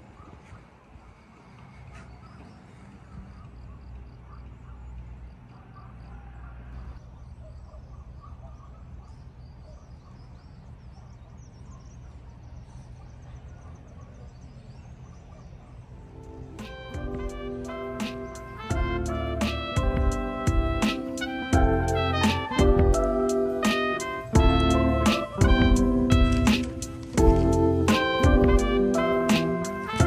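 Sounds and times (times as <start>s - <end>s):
steady low rumble: 24.4s - 28.8s.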